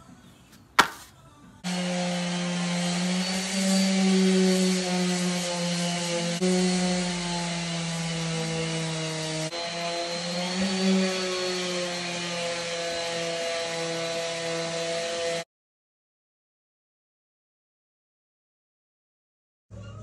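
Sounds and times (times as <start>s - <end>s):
orbital sander on wood: 1.6s - 15.5s.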